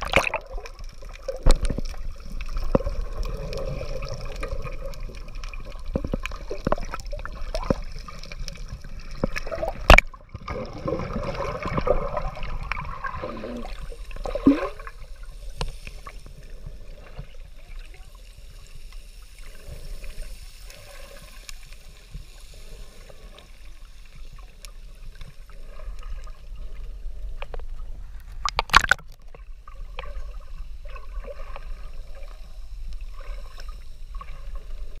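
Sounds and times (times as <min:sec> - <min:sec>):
muffled underwater bubbling: 0:00.0 - 0:15.5, 0:28.2 - 0:29.3.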